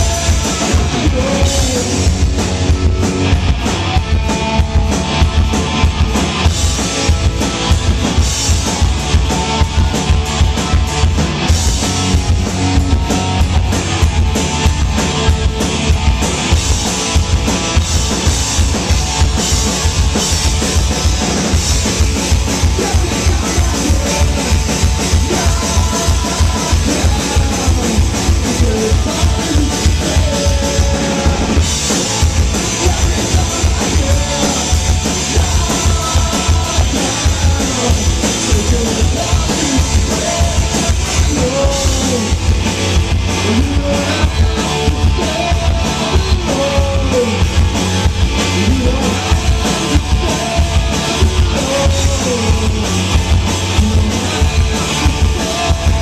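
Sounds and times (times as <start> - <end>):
man singing: 0.0 - 3.0, 19.5 - 56.0
live rock band playing: 0.0 - 56.0.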